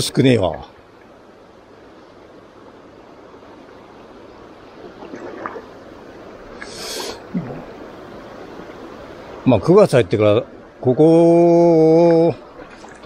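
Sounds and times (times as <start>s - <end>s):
river current rushing: 0.0s - 13.0s
brief hiss: 6.6s - 7.3s.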